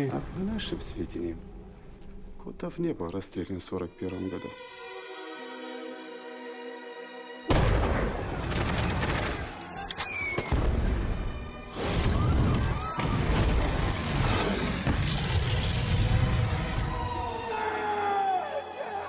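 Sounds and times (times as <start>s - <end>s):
explosions: 7.5s - 9.4s, 10.4s - 17.0s
gunfire: 7.5s - 9.6s.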